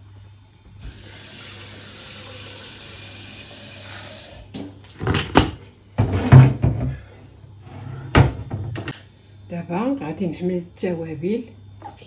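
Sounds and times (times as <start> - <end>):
kitchen tap running: 0.8 - 4.6
kitchen things knocking and clattering: 4.9 - 7.0, 8.2 - 8.9.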